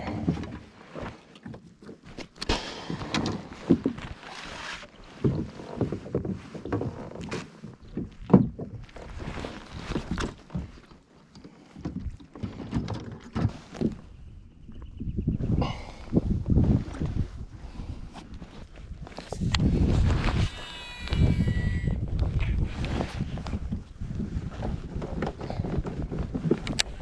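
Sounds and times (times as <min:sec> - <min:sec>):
fish and net handled in kayak: 0:00.0 - 0:27.0
gear bumping against hull: 0:05.1 - 0:09.3.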